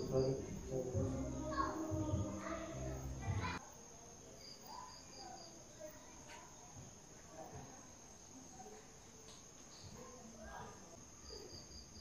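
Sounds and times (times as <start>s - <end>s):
high insect trill: 0.0s - 6.2s.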